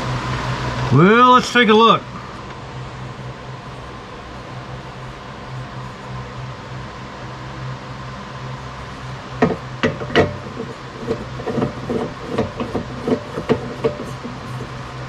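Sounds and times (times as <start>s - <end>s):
workshop hum: 0.0s - 15.0s
sharp metal knocks: 9.4s - 14.7s.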